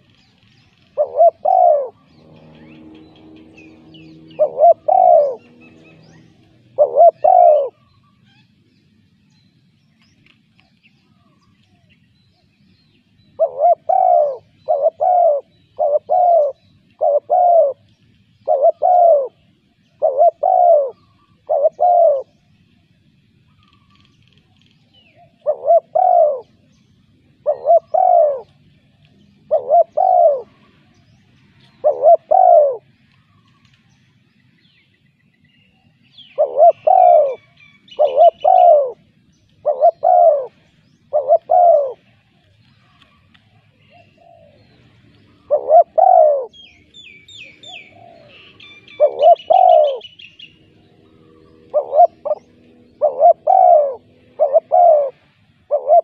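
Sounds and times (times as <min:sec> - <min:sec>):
dove cooing: 0:00.0 - 0:07.9, 0:13.3 - 0:22.4, 0:25.1 - 0:26.6, 0:27.3 - 0:28.7, 0:29.3 - 0:30.9, 0:31.6 - 0:33.6, 0:36.2 - 0:56.0
small birds twittering: 0:00.0 - 0:56.0.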